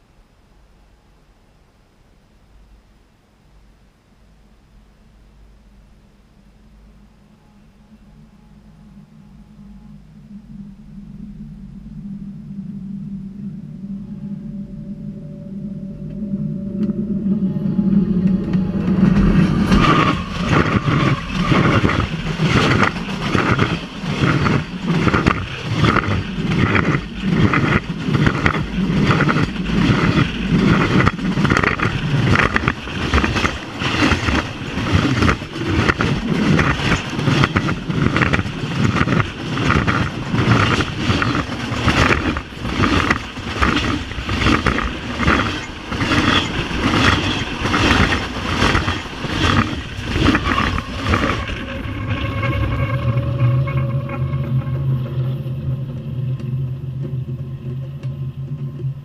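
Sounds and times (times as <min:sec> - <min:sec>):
low train rumble: 0:00.0 - 0:59.0
train wheels clattering on rails: 0:17.8 - 0:59.0.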